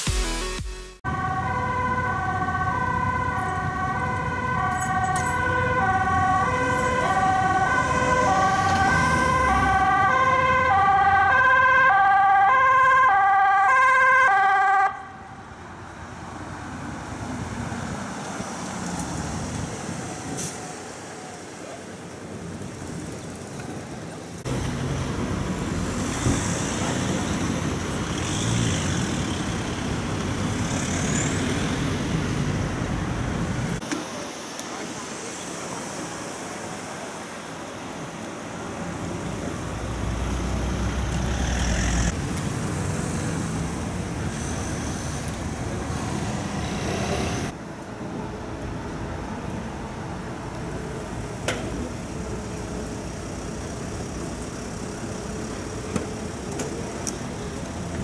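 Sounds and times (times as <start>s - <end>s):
city street traffic noise: 1.0s - 58.0s
ambulance two-tone siren: 1.1s - 15.4s.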